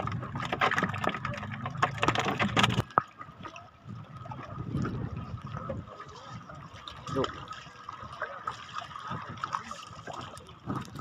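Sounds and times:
fish splashing and slapping: 0.0 - 3.6
water sloshing: 0.0 - 11.0.

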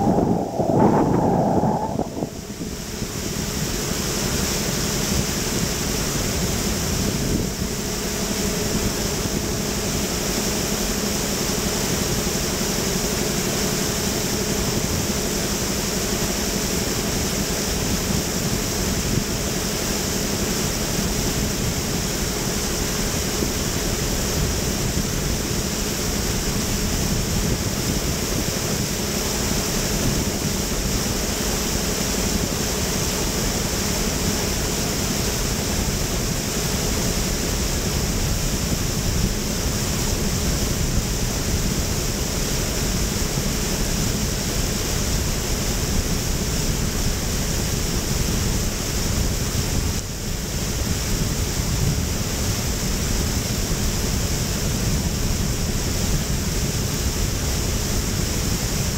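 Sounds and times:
water rushing: 0.0 - 3.2
motorboat engine drone: 0.0 - 58.9
wind: 0.0 - 58.9.

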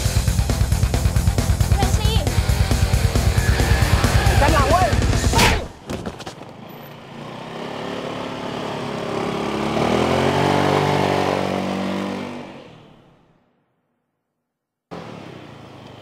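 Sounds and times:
scooter engine accelerating: 0.0 - 5.3, 6.5 - 12.7.

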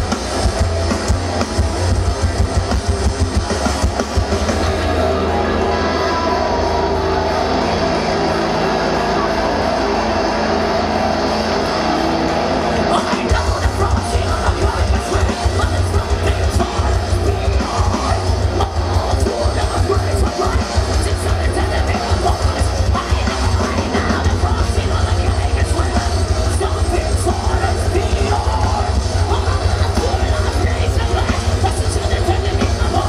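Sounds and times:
heavy metal band playing: 0.0 - 33.0
pounding bass and drums: 0.0 - 33.0
screamed vocals: 5.0 - 8.0.

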